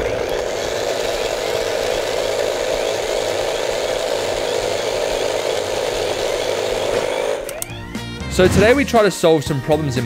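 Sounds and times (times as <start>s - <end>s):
toy mechanical buzz: 0.0s - 7.9s.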